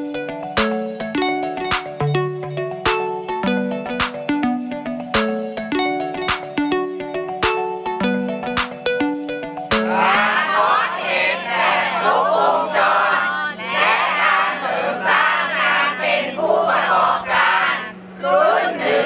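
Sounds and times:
plucked string music: 0:00.0 - 0:10.5
crowd shouting and cheering: 0:09.7 - 0:15.5.

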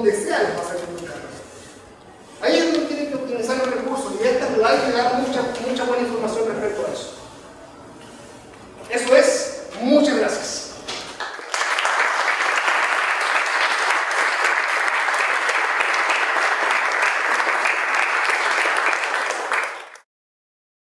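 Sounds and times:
audience applauding: 0:11.1 - 0:20.0.

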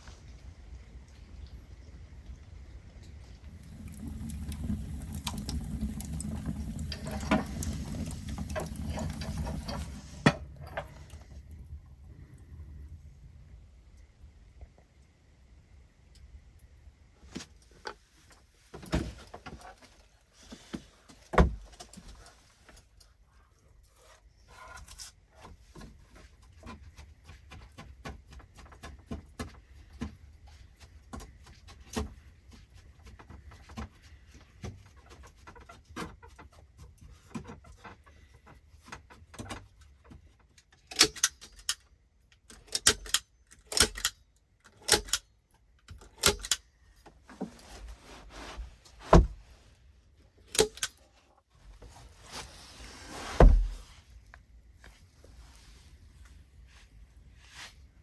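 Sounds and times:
soft irregular crackling: 0:51.0 - 0:58.0.

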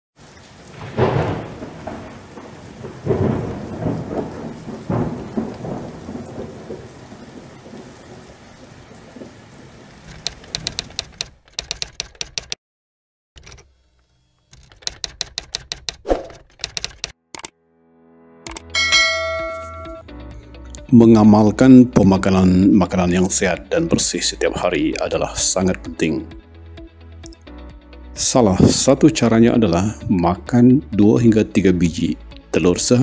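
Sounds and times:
rain: 0:00.2 - 0:11.3
thunder claps: 0:00.5 - 0:11.0, 0:28.6 - 0:29.0
rapid sharp clicking: 0:10.1 - 0:12.6, 0:14.5 - 0:17.5.

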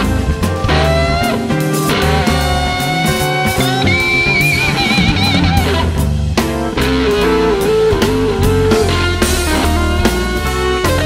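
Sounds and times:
rock music: 0:00.0 - 0:11.0
steady bass line: 0:00.0 - 0:11.0
wavering guitar note: 0:00.7 - 0:06.1.

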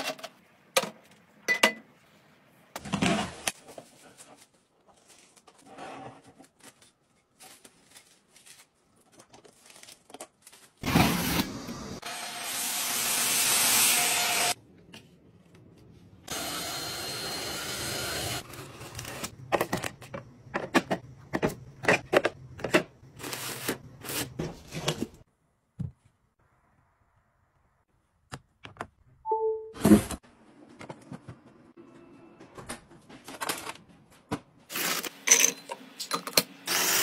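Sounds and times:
plastic and paper handled: 0:03.0 - 0:10.8.

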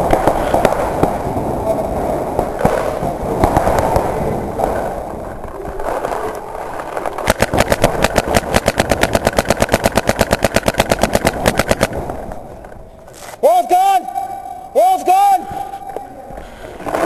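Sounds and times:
paintball marker rapid firing: 0:00.0 - 0:01.3, 0:02.4 - 0:04.9, 0:07.2 - 0:12.6.

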